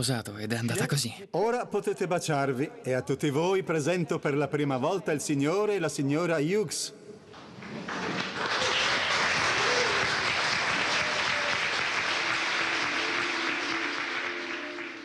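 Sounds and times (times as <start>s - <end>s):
crowd applauding: 7.3s - 15.0s.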